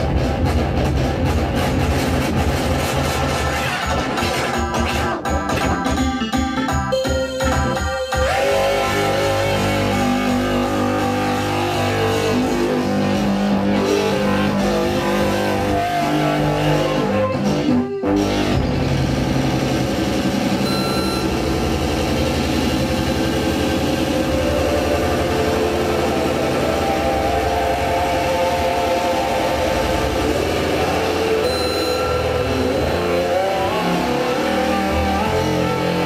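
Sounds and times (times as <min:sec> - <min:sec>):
electronic droning tones: 0:18.0 - 0:36.0
low pulsing rumbling drone: 0:18.5 - 0:33.1.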